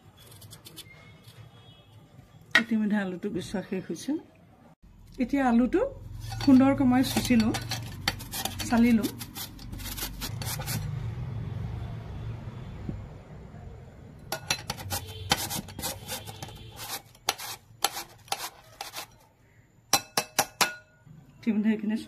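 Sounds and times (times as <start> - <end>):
potato rasping on a metal grater: 6.1 - 10.9, 14.6 - 19.3.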